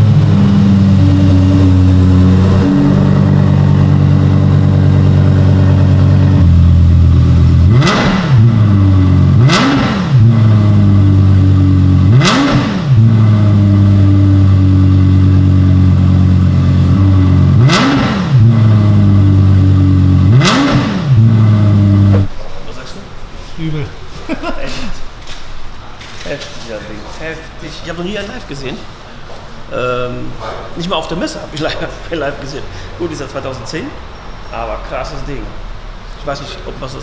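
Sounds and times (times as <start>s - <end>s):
engine throttle blips: 0.0s - 22.3s
car engine idling: 0.0s - 22.6s.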